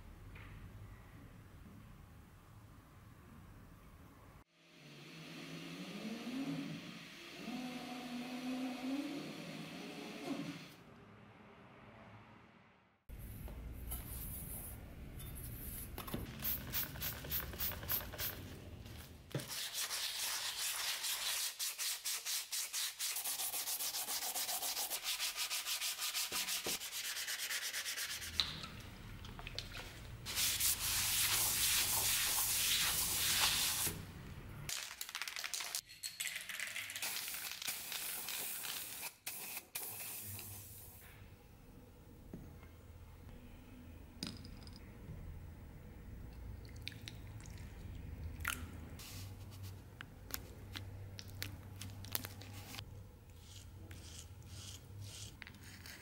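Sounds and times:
aerosol can spraying: 37.1s - 40.8s.

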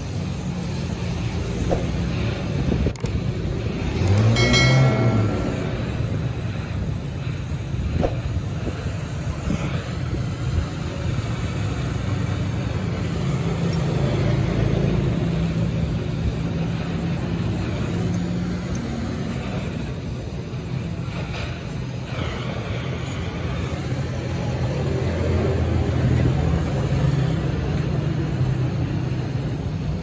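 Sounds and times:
low mechanical rumble: 0.0s - 30.0s.

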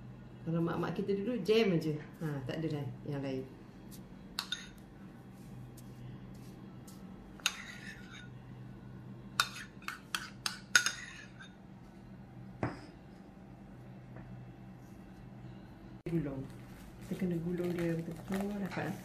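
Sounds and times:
metal spoon clinking on bowl: 9.4s - 11.6s.

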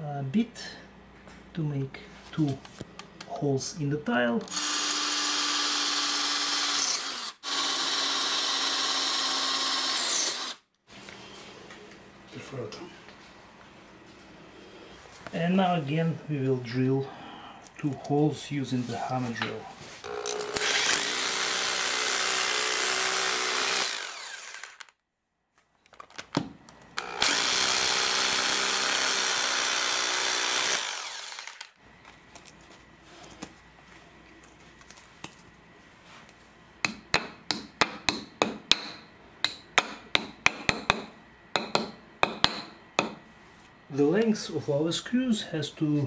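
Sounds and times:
hammer drill boring into concrete: 4.4s - 10.6s, 20.0s - 24.9s, 27.0s - 31.8s.

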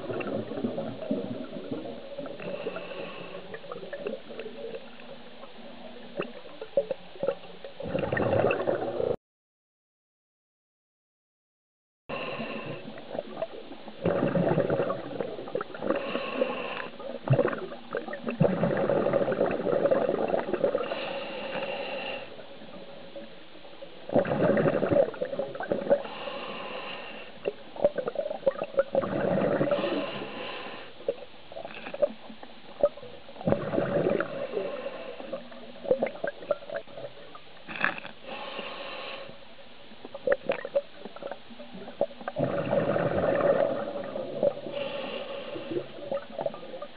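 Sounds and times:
bubbly regulator exhalations: 0.0s - 2.9s, 7.2s - 9.2s, 12.6s - 21.2s, 24.1s - 26.1s, 27.5s - 30.2s, 33.4s - 38.4s, 40.2s - 46.9s
diver inhaling through regulator: 2.4s - 3.7s, 12.1s - 13.0s, 15.9s - 17.1s, 20.7s - 22.4s, 26.0s - 27.5s, 29.2s - 31.0s, 33.7s - 35.6s, 37.7s - 39.4s, 42.4s - 46.2s.

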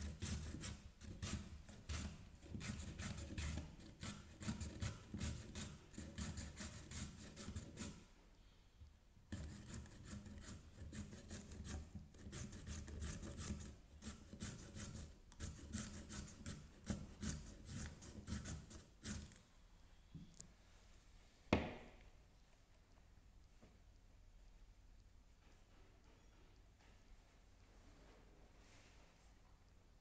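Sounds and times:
carrot rasping on shredder: 0.0s - 8.0s.

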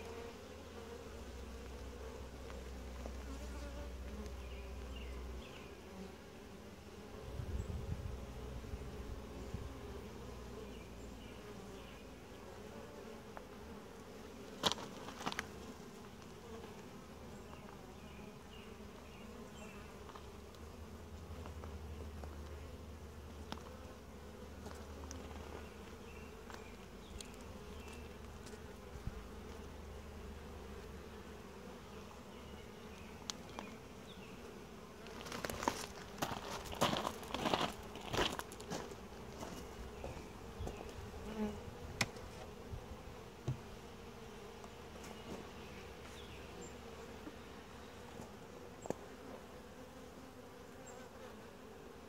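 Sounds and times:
honey bees buzzing: 0.0s - 52.0s.

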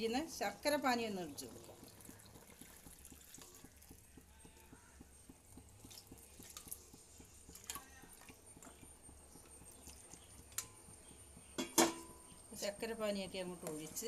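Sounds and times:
utensils clicking against steel pot: 5.5s - 11.0s.

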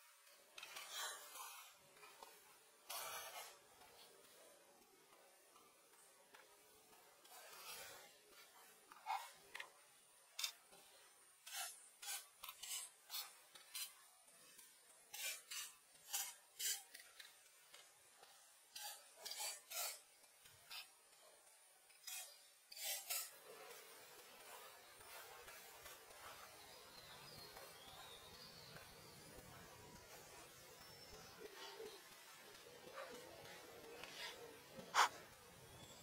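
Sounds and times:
pencil scratching on paper: 11.4s - 14.0s, 15.1s - 16.9s, 30.1s - 35.9s.

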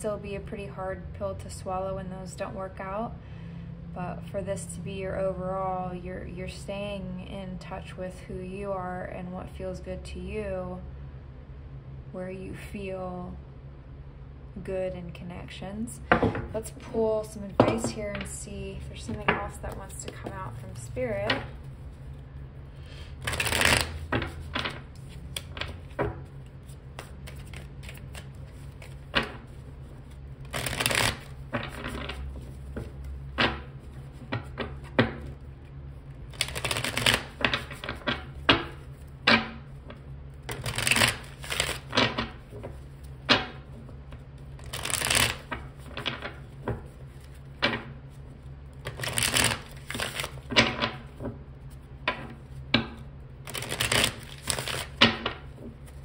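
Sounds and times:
steady low hum: 0.0s - 56.0s
cards being shuffled: 17.6s - 22.2s, 23.2s - 35.5s, 36.3s - 52.7s, 53.4s - 56.0s.

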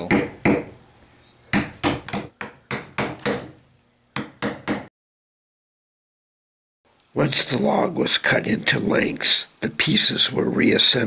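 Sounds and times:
sharp knocks: 0.0s - 0.8s, 1.5s - 3.6s, 4.2s - 4.9s.

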